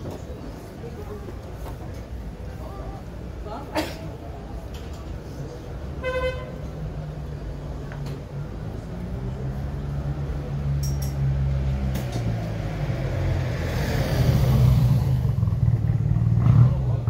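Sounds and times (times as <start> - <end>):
vehicle engine droning: 6.4 - 17.0.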